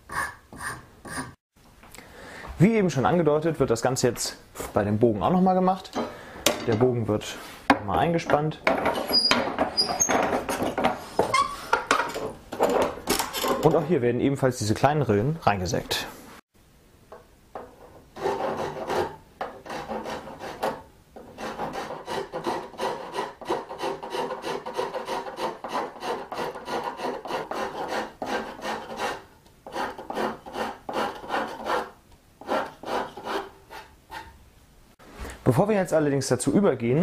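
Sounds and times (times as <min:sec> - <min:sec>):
hand saw sawing wood: 0:18.2 - 0:34.3.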